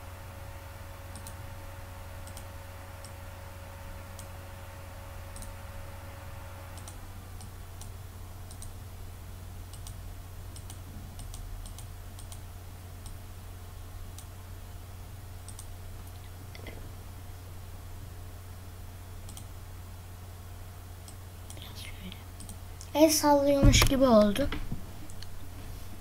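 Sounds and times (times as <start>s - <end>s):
low electrical hum: 0.0s - 26.0s
computer mouse clicking: 1.1s - 1.4s, 2.2s - 3.2s, 4.1s - 4.4s, 5.3s - 5.6s, 6.7s - 8.8s, 9.7s - 12.4s, 13.0s - 13.2s, 14.1s - 14.3s, 15.4s - 16.8s, 19.2s - 19.5s, 22.4s - 22.9s.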